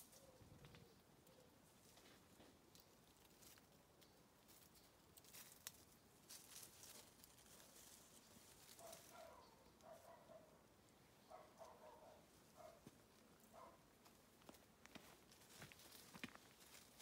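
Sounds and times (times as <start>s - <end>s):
rustling in dry leaves: 0.0s - 1.0s, 1.6s - 10.0s, 15.4s - 17.0s.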